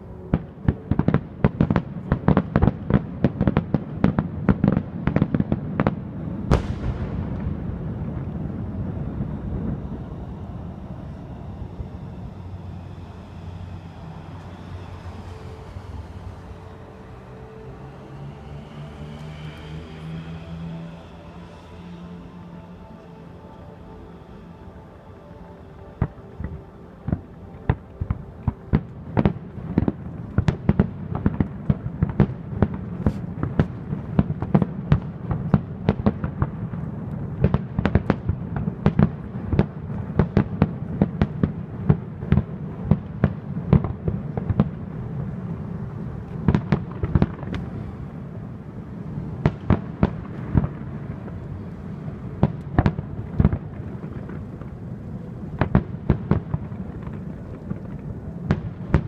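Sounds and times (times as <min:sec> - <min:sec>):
fireworks low rumble: 0:00.0 - 0:59.0
fireworks bangs: 0:00.3 - 0:17.6, 0:49.0 - 0:59.0.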